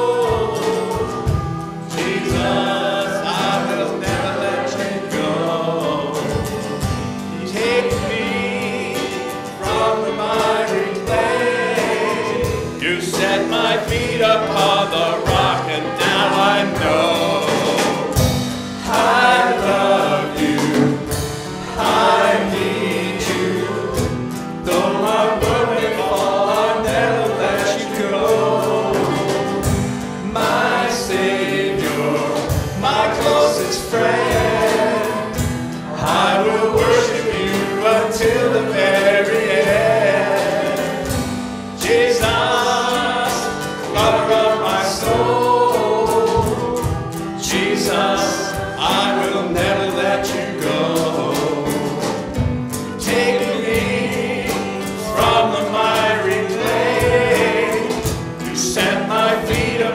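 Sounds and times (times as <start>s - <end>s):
man singing: 0.0s - 20.7s, 41.8s - 52.2s, 53.0s - 59.9s
voices singing along: 0.0s - 59.9s
worship band playing: 0.0s - 59.9s.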